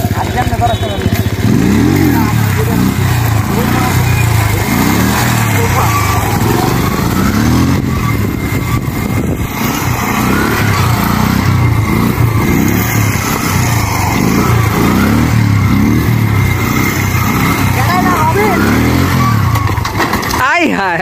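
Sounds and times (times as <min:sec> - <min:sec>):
motorcycle engine blipping: 0:00.0 - 0:21.0.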